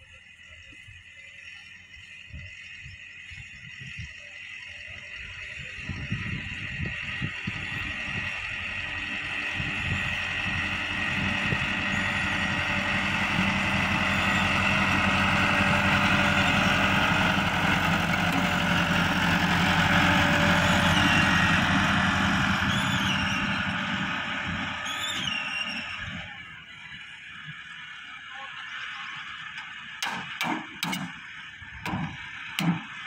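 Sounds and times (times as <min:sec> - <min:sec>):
tractor engine running: 0:00.0 - 0:33.0.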